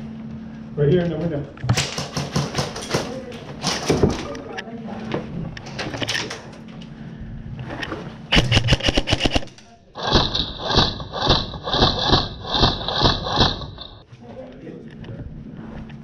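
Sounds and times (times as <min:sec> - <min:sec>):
airsoft gun firing: 0:08.3 - 0:13.8.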